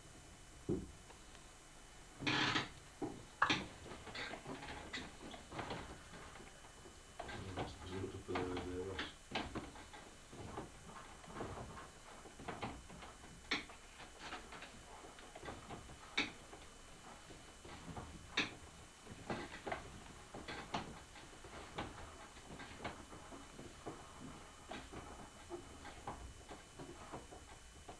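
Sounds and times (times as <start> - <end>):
potter's wheel clicks and knocks: 7.2 - 16.6, 17.7 - 27.9.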